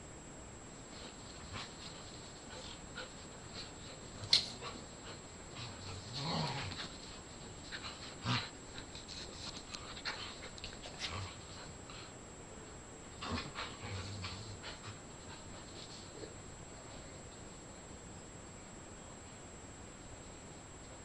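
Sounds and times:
dogs scuffling and snuffling: 0.9s - 12.1s, 13.2s - 17.6s.

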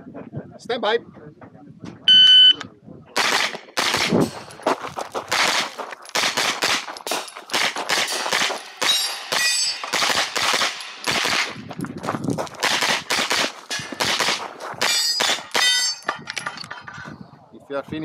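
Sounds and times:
carbine gunshots: 3.2s - 4.6s, 5.2s - 11.7s, 12.5s - 15.9s.

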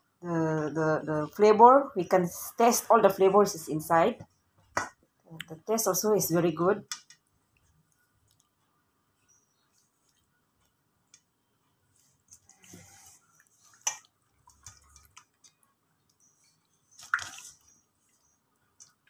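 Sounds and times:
hand squelching raw chicken: 16.9s - 19.0s.

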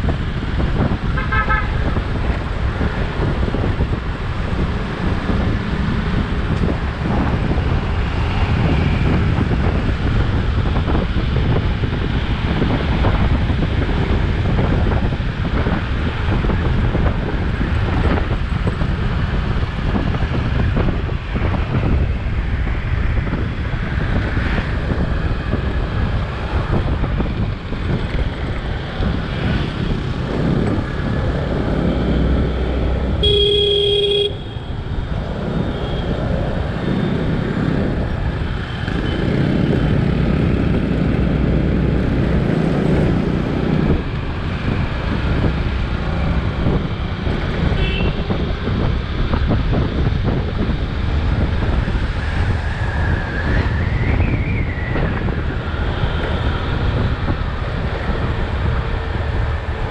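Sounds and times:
wind buffeting microphone: 0.0s - 33.4s, 34.2s - 59.9s
traffic noise: 0.0s - 59.9s
vehicle horn honk: 1.2s - 1.8s, 33.2s - 34.7s, 47.8s - 48.2s.

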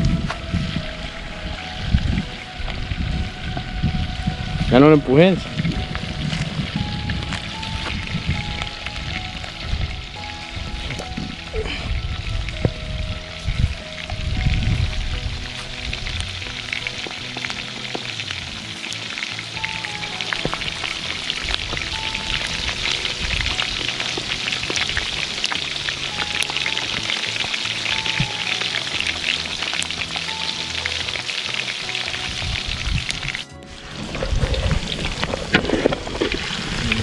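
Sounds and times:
deep-frying sizzle with crackling pops: 5.5s - 37.0s.

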